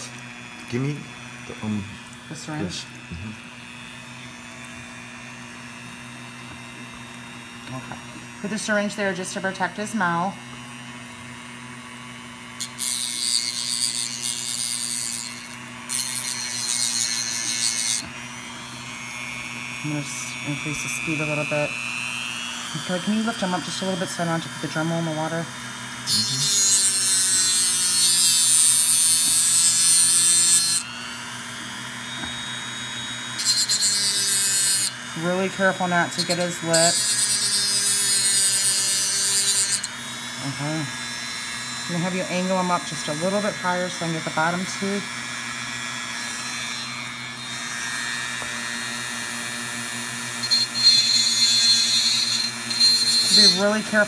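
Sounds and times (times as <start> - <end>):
rotary tool humming: 0.0 - 54.0
rotary tool grinding: 12.0 - 54.0.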